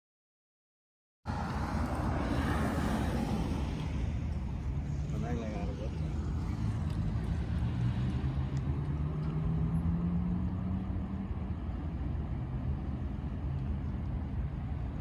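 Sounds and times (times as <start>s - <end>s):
low traffic rumble: 1.3s - 15.0s
vehicle engine accelerating: 6.0s - 12.8s.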